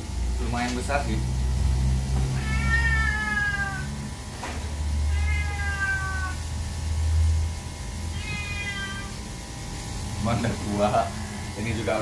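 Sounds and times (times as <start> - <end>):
cat meowing: 2.3 - 4.1, 5.0 - 6.4, 8.1 - 9.2.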